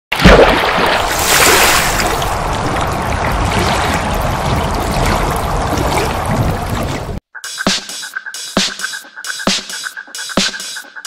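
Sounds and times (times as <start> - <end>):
loud water splash: 0.1 - 7.2
rushing water noise: 0.2 - 7.2.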